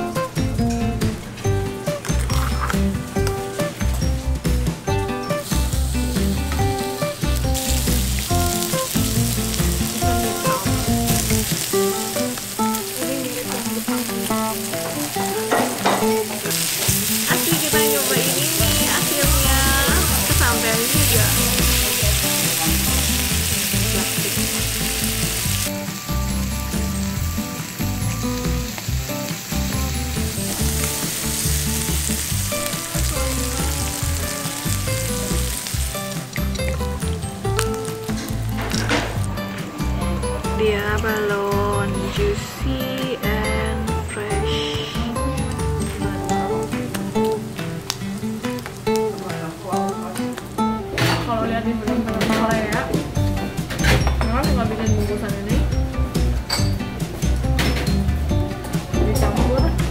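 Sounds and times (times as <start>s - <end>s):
background music: 0.0s - 59.9s
meat sizzling on griddle: 4.4s - 40.6s, 45.0s - 50.8s.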